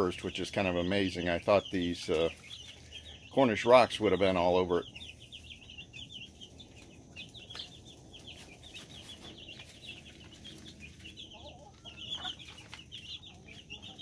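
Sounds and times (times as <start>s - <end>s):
chicks peeping: 0.0s - 14.0s.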